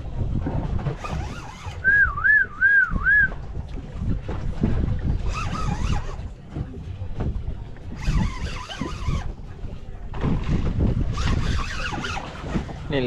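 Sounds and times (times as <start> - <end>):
wind and water rushing: 0.0 - 13.0
person whistling warbling note: 1.8 - 3.4.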